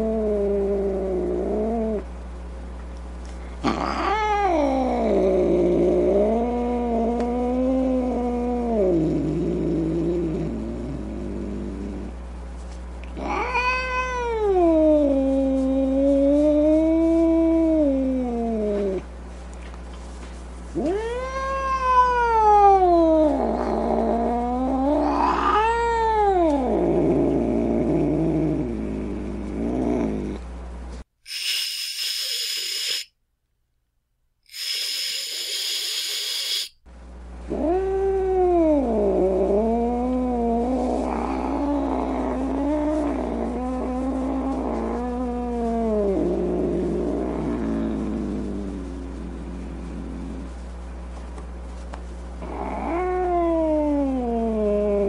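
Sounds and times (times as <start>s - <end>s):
cat growling: 0.0s - 2.1s, 3.6s - 12.2s, 13.1s - 19.1s, 20.7s - 30.4s, 34.5s - 36.7s, 37.5s - 50.6s, 52.4s - 55.0s
cat yowling: 3.7s - 5.1s, 13.2s - 15.1s, 20.8s - 23.4s, 24.5s - 26.6s, 34.5s - 36.7s
cat hissing: 20.8s - 26.2s, 31.3s - 33.1s, 34.5s - 36.8s.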